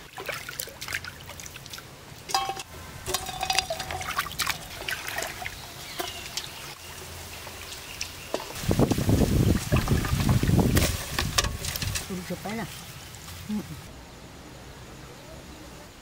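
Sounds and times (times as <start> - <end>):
water splashing and trickling: 0.0 - 13.9
crabs knocking and clicking: 2.3 - 8.6, 9.5 - 12.6.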